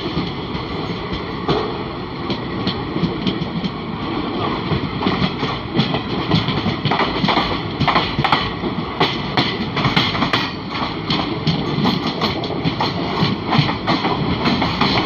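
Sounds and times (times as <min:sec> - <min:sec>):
passing train: 0:00.0 - 0:15.0
train wheels clattering over rail joints: 0:00.0 - 0:15.0.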